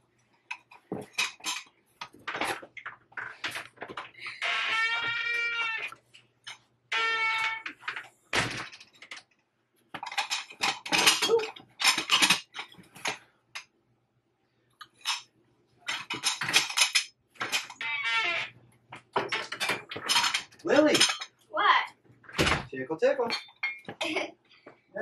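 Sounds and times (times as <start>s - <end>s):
ceramic teacups clinking: 19.3s - 21.3s, 23.3s - 24.0s.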